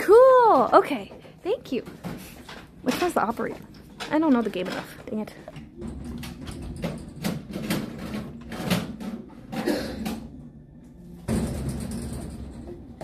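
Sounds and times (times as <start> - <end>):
knocks and clunks of handling: 0.5 - 10.4.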